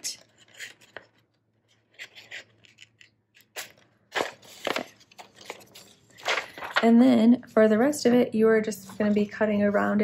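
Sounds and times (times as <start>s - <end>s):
scissors cutting paper: 0.1s - 1.2s, 1.8s - 5.6s.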